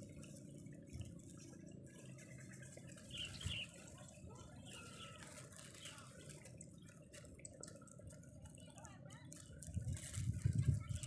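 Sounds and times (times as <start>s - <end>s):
light scattered ticks: 0.0s - 11.0s
wind rumbling on microphone: 9.4s - 11.0s.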